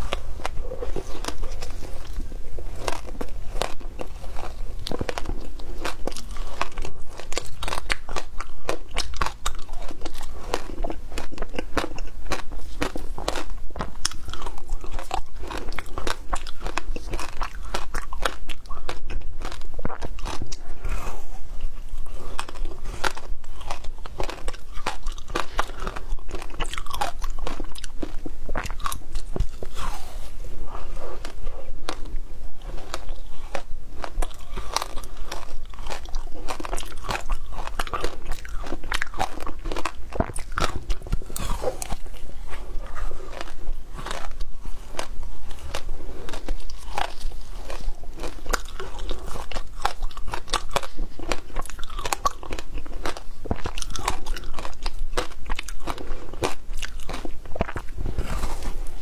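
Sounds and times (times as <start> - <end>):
crunching frozen ice: 22.0 - 30.2, 30.8 - 59.0.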